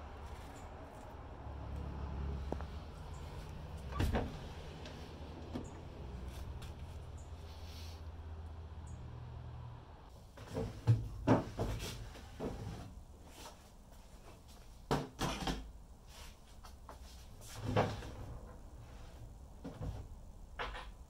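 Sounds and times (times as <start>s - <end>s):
wooden drawers sliding and knocking: 10.4s - 13.0s, 17.4s - 18.8s.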